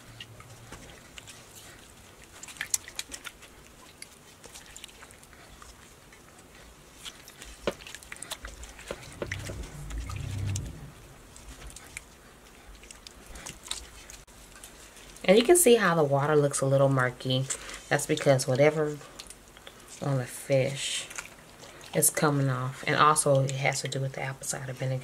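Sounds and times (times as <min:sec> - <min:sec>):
wet squishing with splashes: 0:00.7 - 0:10.6
low rumble: 0:08.5 - 0:12.1.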